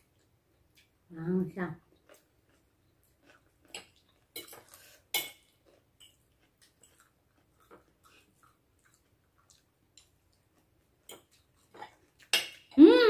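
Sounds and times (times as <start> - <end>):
cutlery scraping a plate: 3.7 - 6.2, 12.2 - 12.7.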